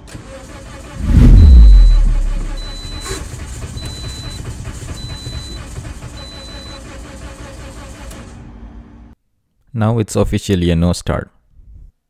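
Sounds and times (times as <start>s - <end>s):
car engine cranking: 0.0s - 8.3s.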